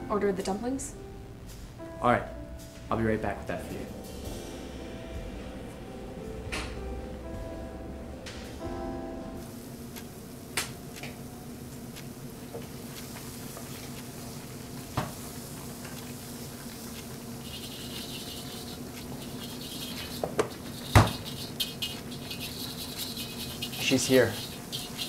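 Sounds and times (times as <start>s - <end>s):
steady low hum: 0.0s - 25.0s
food sizzling in a wok: 3.7s - 5.4s, 12.2s - 25.0s.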